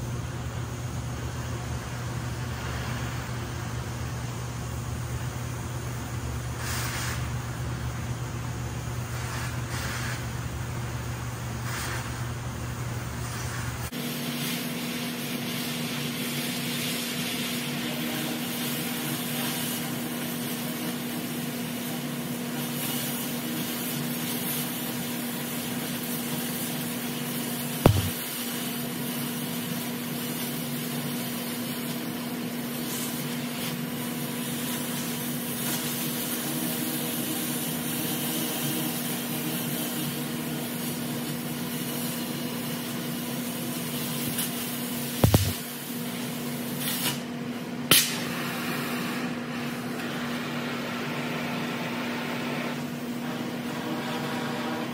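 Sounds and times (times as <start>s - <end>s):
cutting torch hissing: 6.5s - 7.4s, 9.1s - 10.4s, 11.6s - 12.3s, 13.2s - 47.3s
steady low hum: 27.8s - 28.3s, 45.2s - 46.3s
sharp pop: 27.9s - 28.2s, 45.2s - 45.6s, 47.9s - 48.2s.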